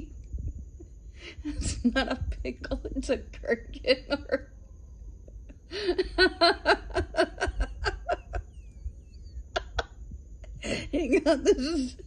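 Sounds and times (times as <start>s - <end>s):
person laughing: 5.3s - 8.5s, 9.5s - 12.0s.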